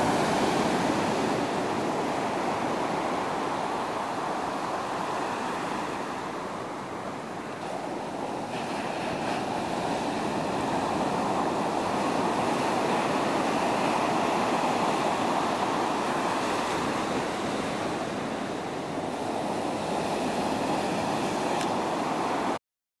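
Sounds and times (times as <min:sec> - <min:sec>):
ocean surf breaking on beach: 0:00.0 - 0:22.6.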